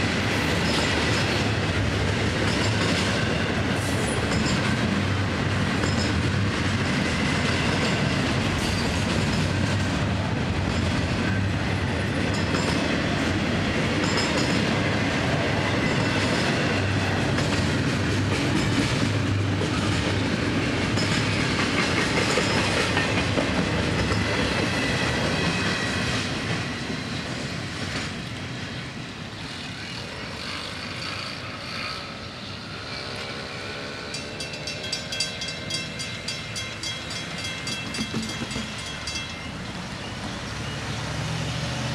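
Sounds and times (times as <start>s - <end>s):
freight train rumbling past: 0.0s - 41.9s
wheels clattering over rail joints: 33.2s - 40.8s.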